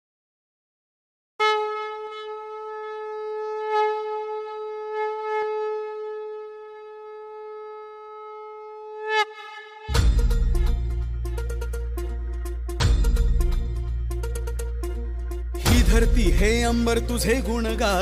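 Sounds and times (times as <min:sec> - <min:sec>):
conch shell blown: 0:01.4 - 0:12.6.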